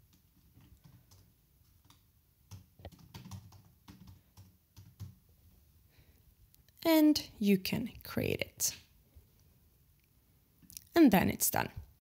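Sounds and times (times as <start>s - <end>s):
typing on a keyboard: 0.0s - 5.2s.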